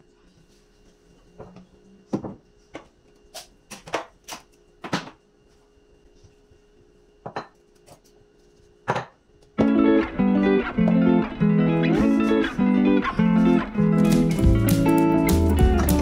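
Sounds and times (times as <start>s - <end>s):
kitchen items knocking and clattering: 3.7s - 5.2s, 8.8s - 9.7s.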